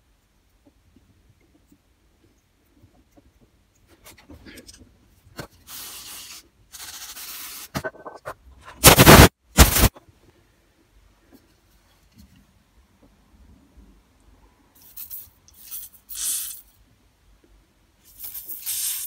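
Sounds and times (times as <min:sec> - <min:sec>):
air blasts through small part: 0:05.6 - 0:07.8, 0:08.8 - 0:10.0, 0:14.9 - 0:16.7, 0:18.1 - 0:19.0
spray hissing: 0:08.8 - 0:09.9, 0:18.2 - 0:19.0.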